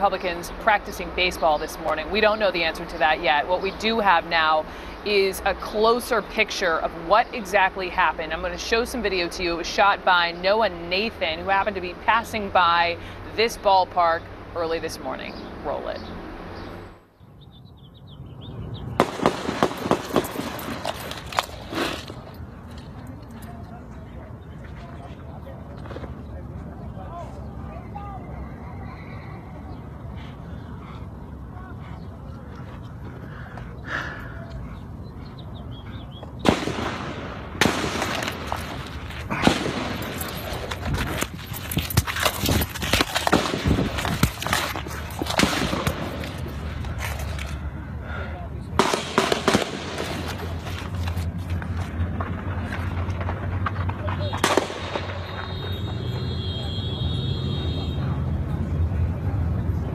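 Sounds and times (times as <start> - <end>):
gunshots: 19.0 - 21.9, 36.4 - 40.6, 43.0 - 44.6, 45.2 - 46.2, 48.8 - 50.3, 54.2 - 55.6.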